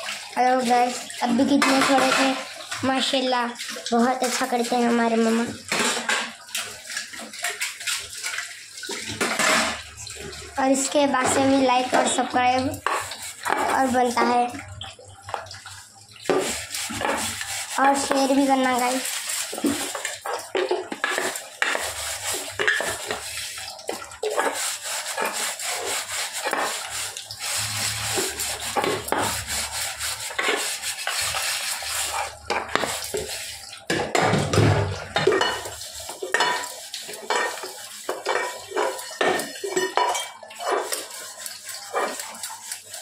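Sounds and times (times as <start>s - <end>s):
steel wool scrubbing metal: 16.3s - 33.7s, 35.4s - 43.0s
metal utensils clinking: 35.2s - 41.1s.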